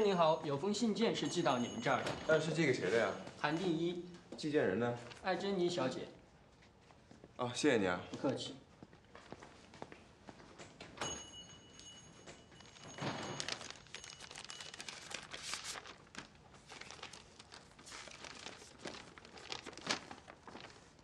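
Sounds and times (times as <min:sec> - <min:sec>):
paper rustling and crinkling: 0:05.0 - 0:05.4, 0:12.6 - 0:21.0.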